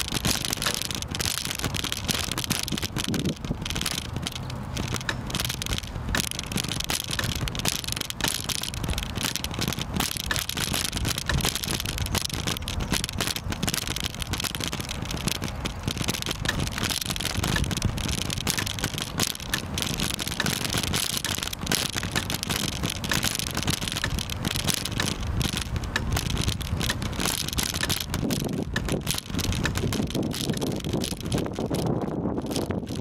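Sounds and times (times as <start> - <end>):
camera rattling and rumble: 0.0 - 33.0
small clicks: 0.0 - 33.0
wind buffeting microphone: 0.0 - 33.0.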